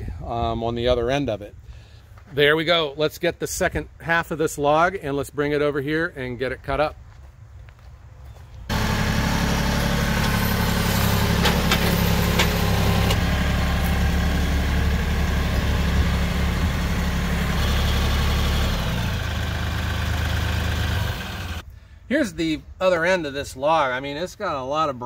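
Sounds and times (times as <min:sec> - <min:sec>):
tractor engine running: 0:08.7 - 0:21.6.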